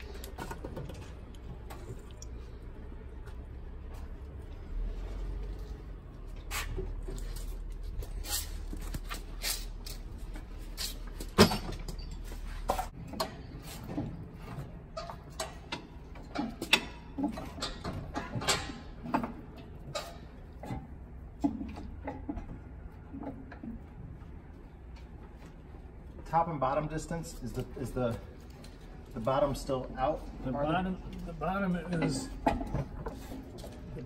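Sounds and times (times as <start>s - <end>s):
low steady hum: 0.0s - 34.0s
metal clinks and knocks: 6.8s - 23.7s.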